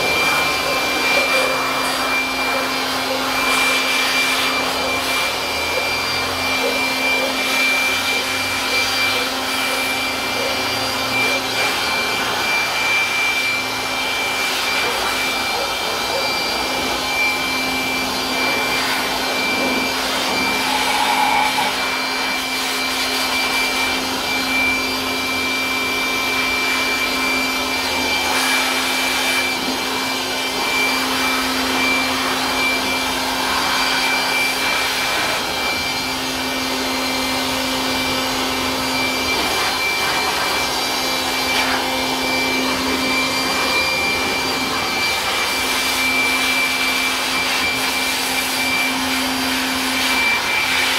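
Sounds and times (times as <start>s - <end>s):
electric blower running: 0.0s - 50.9s.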